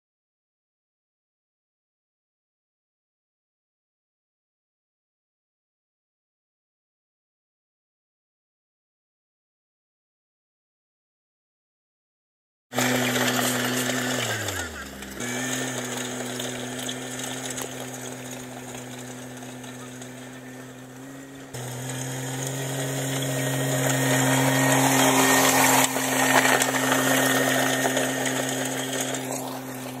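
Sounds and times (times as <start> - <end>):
diesel utility vehicle engine: 12.7 - 30.0.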